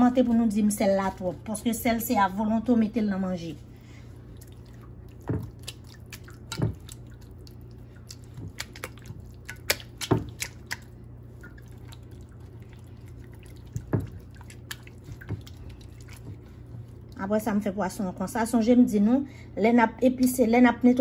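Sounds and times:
faint low hum: 0.0 - 21.0
hands squelching paste into fish: 4.2 - 17.2.

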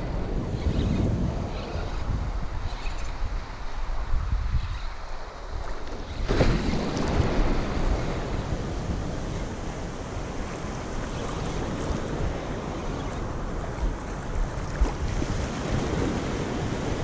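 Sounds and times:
wind buffeting microphone: 0.0 - 17.0
small surf waves washing: 5.2 - 17.0.

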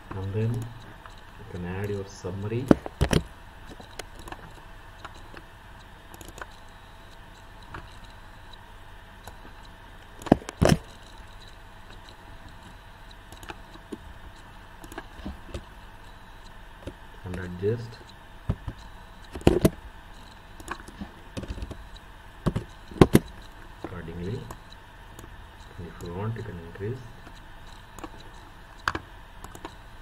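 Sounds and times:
steady background hum: 0.0 - 30.0
mouse and keyboard clicks: 6.1 - 6.6, 27.2 - 29.8.

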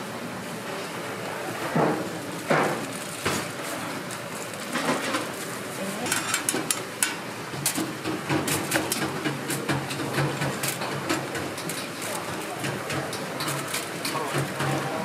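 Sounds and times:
frying oil hissing: 2.2 - 15.0
metal utensils clicking: 10.6 - 14.9.

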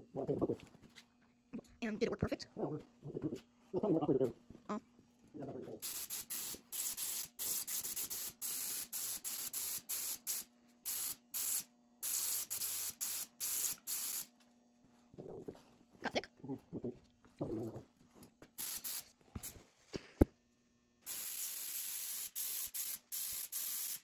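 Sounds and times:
spray paint hissing bursts: 5.8 - 14.3, 18.6 - 19.6, 21.0 - 24.0.

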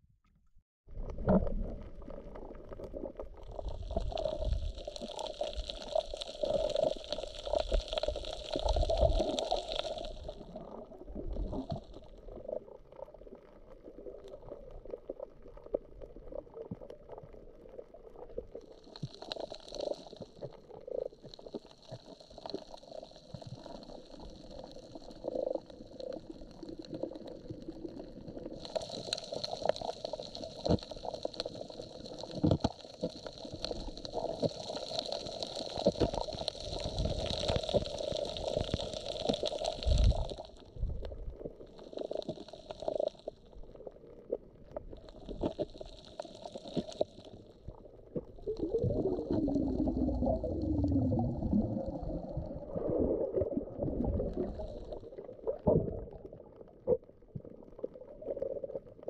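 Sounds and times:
underwater gurgling and bubbling: 0.9 - 59.0
crackling clicks: 1.0 - 52.4, 53.4 - 59.0.

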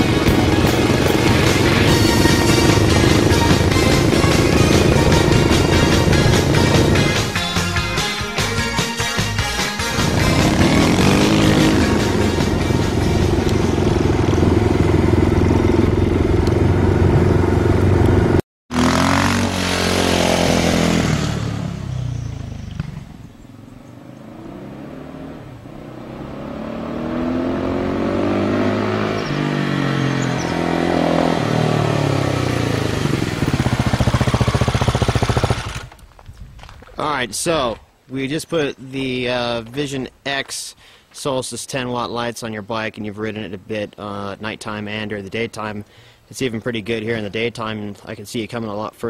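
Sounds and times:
motorcycle engine: 0.0 - 36.1.

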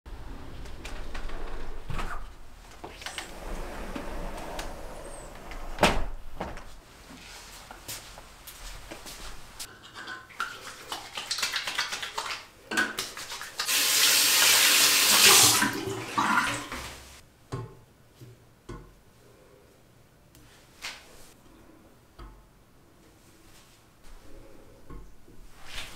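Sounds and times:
water splashing: 10.4 - 17.2
faucet running into a basin: 13.6 - 16.8.

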